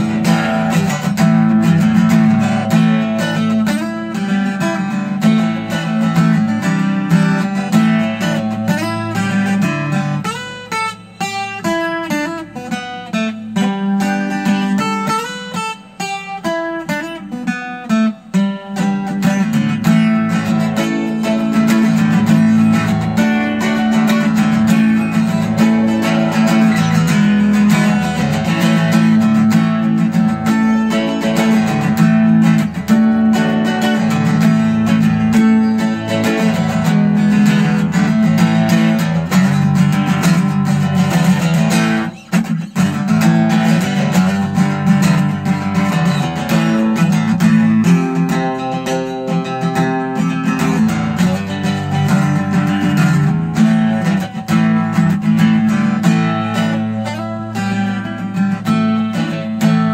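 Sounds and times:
acoustic guitar picking and strumming: 0.0 - 59.9.

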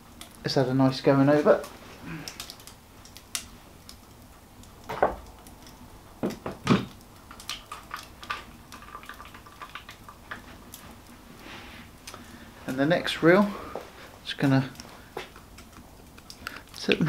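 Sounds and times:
light clicks and ticks: 0.2 - 0.4, 1.5 - 5.8, 14.4 - 17.0.

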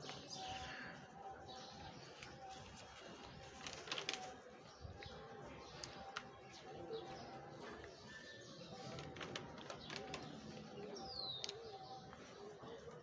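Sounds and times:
paper pages turning: 2.1 - 4.4, 8.8 - 10.7.

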